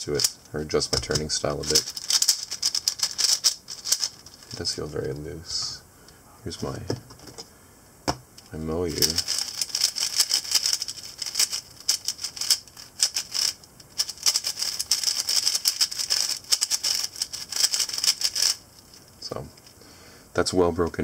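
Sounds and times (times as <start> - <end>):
puzzle cube plastic clicks: 0.2 - 0.4, 1.0 - 4.6, 8.4 - 19.0.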